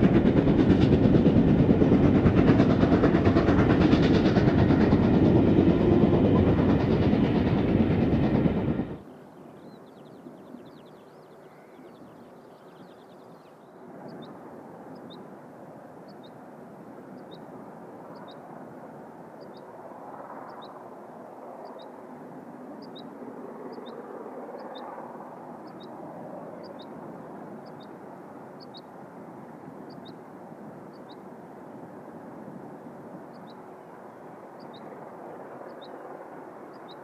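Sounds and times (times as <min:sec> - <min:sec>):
distant steam train rumbling: 0:00.0 - 0:09.2.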